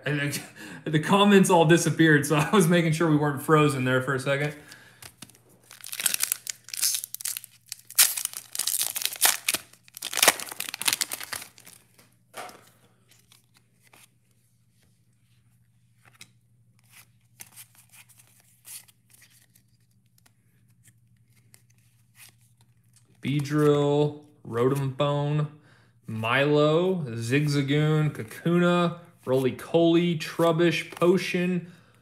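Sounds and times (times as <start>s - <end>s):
cards clicking and rustling: 4.4s - 14.2s
foil wrapper tearing and crinkling: 5.0s - 12.0s.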